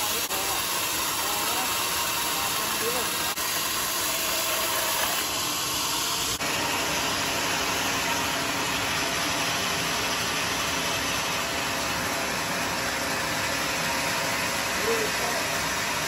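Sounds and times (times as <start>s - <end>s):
sawmill saw hissing: 0.0s - 16.0s.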